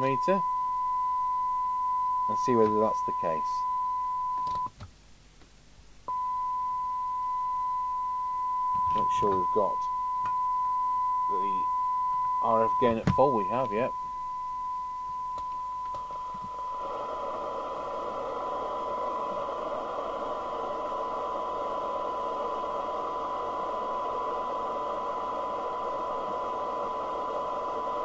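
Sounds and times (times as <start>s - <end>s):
steady test tone: 0.0s - 4.6s, 6.1s - 28.0s
receiver noise hiss: 0.0s - 28.0s.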